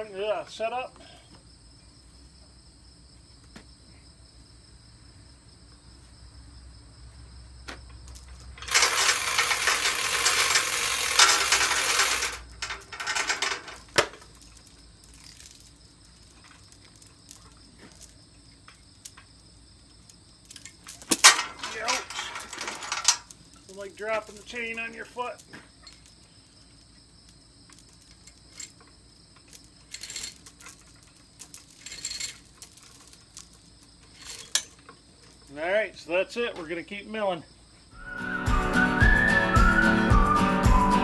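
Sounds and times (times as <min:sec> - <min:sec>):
metal chain rattling: 0:07.9 - 0:35.6
sharp metal clanks: 0:08.2 - 0:15.6, 0:20.5 - 0:23.3.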